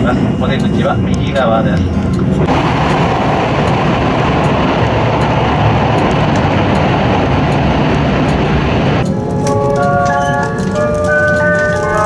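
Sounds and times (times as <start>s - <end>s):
train wheels rumbling on rail: 0.0s - 12.0s
rush of air in tunnel: 2.3s - 9.1s.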